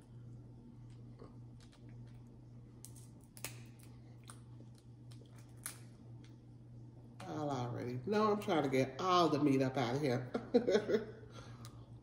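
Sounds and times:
low steady hum: 0.0 - 12.0
shellfish shell cracking by hand: 2.8 - 6.4.

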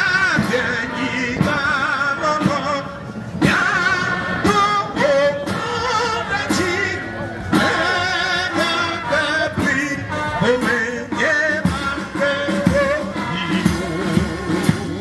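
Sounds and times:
regular beat: 3.4 - 15.0.

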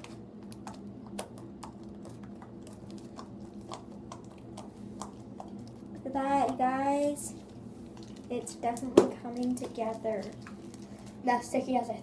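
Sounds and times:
steady low hum: 0.0 - 12.0
slime clicking and popping: 0.5 - 5.8.

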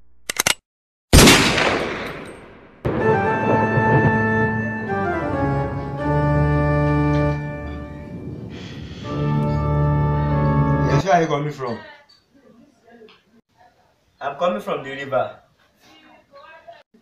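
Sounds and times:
organ-like chords with bass: 2.9 - 8.3, 9.0 - 11.0.

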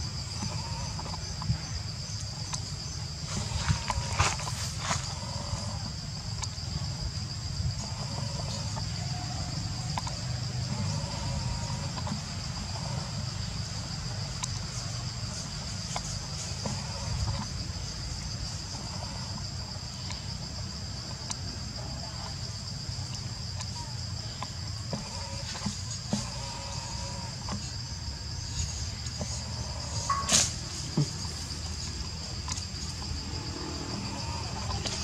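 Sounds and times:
insects droning: 0.0 - 35.0
faint ticks: 6.3 - 6.6, 9.8 - 13.6, 14.3 - 17.6, 18.8 - 20.4, 21.0 - 22.4.

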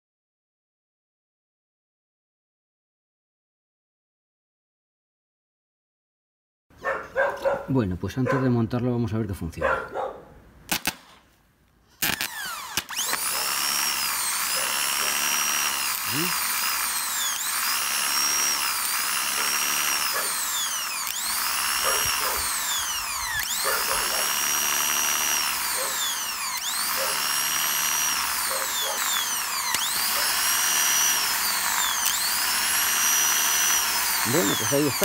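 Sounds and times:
electric motor whine: 12.0 - 35.0.

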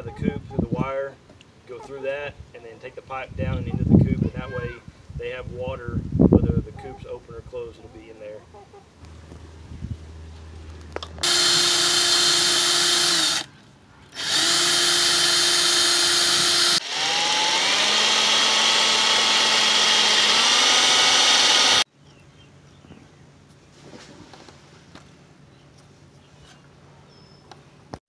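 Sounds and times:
electric drill whining: 11.2 - 13.5, 14.2 - 21.9.

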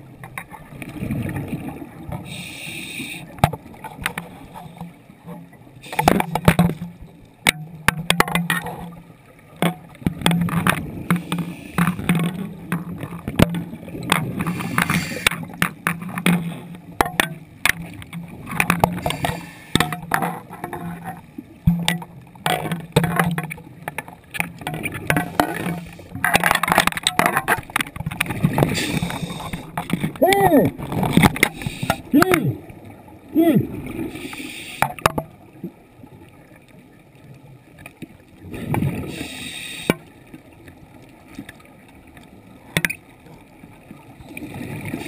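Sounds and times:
exhaled bubbles gurgling: 0.0 - 4.8, 8.5 - 36.4, 38.3 - 40.0, 42.5 - 45.0
regulator inhalations: 2.3 - 3.3, 14.5 - 15.3, 19.0 - 19.8, 28.8 - 29.7, 31.5 - 32.1, 34.1 - 34.9, 39.1 - 40.0.

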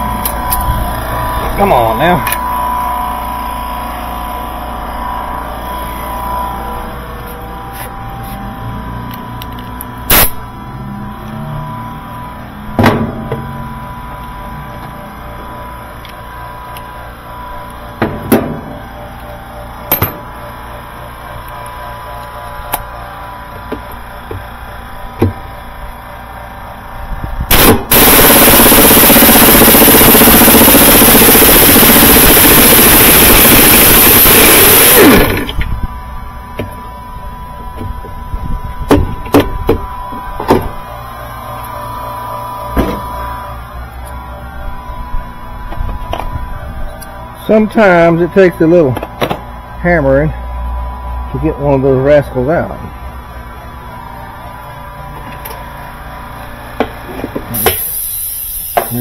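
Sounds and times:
pneumatic impact wrench hammering: 10.1 - 10.4, 27.5 - 35.7, 56.8 - 59.0.

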